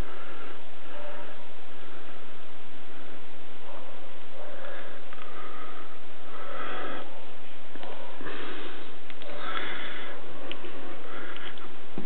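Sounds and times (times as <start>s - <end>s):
person breathing through nose: 4.6s - 7.2s, 8.0s - 10.2s.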